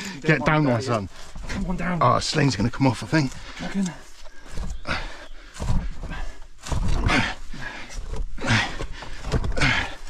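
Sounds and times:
men grunting and breathing hard: 0.0 - 1.5, 3.3 - 10.0.

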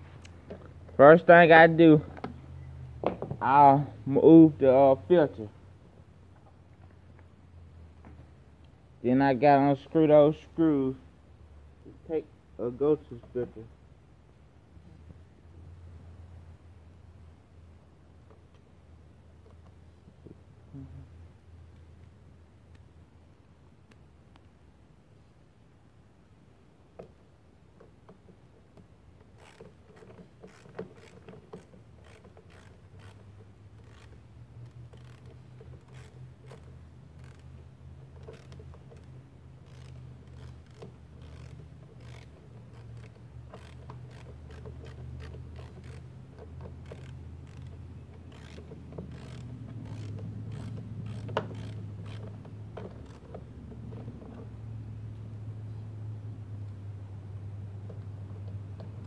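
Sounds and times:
steady low hum: 0.0 - 59.0
screws clicking and scraping: 27.8 - 54.2.

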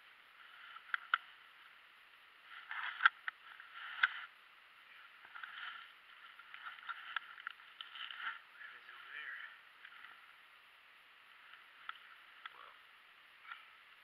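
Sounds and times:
rustling and handling noise: 0.0 - 12.7.

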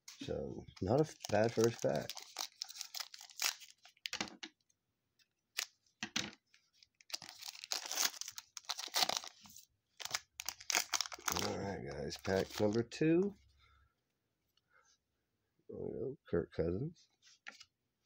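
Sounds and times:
foil wrapper crinkling and tearing: 0.8 - 4.2, 6.9 - 12.8.

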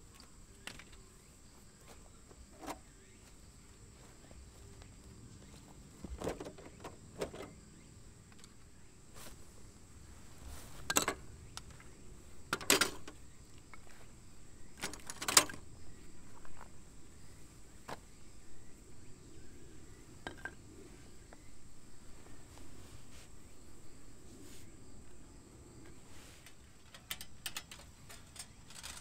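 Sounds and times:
metal tools clinking on firewood: 10.8 - 11.8, 12.5 - 13.8, 26.4 - 29.0.

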